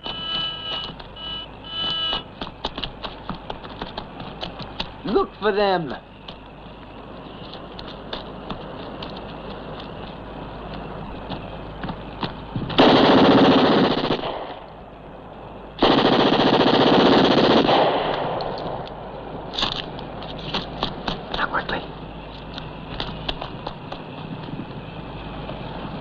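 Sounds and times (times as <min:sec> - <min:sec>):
automatic gunfire bursts: 0:12.8 - 0:14.6, 0:15.8 - 0:18.6.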